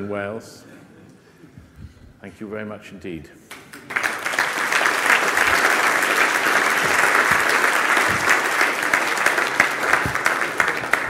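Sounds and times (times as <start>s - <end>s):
audience applauding: 3.5s - 11.0s.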